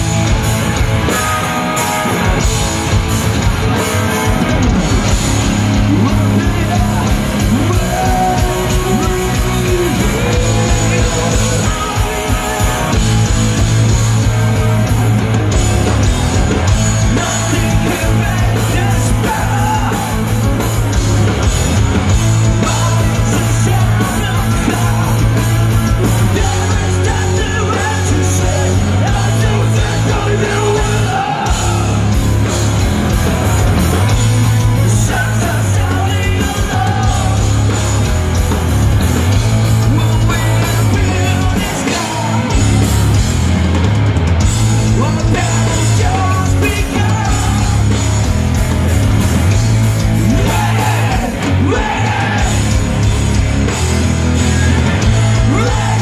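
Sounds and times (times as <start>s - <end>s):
bass guitar: 0.0s - 56.0s
drums: 0.0s - 56.0s
electric guitars: 0.0s - 56.0s.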